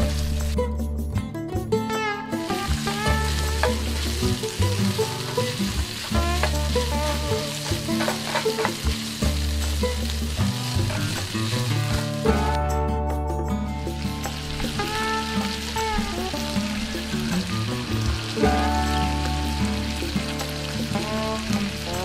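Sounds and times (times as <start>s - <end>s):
food sizzling in a pan: 0.0s - 0.6s, 2.4s - 12.6s, 13.8s - 22.0s
background music with bass: 0.0s - 22.0s.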